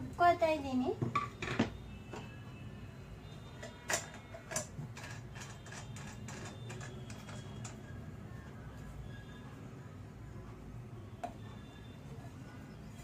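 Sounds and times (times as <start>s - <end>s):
steel jar clicks and knocks: 3.6s - 7.8s.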